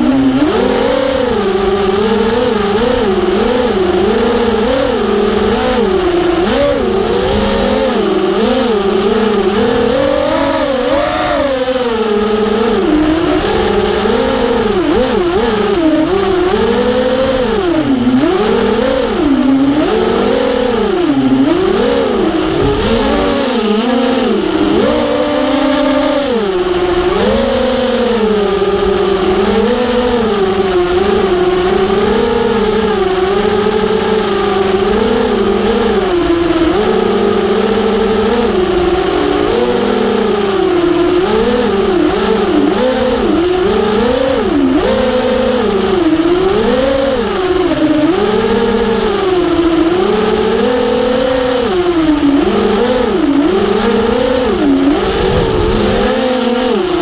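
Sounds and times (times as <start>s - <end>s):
drone motors whining: 0.0s - 57.0s.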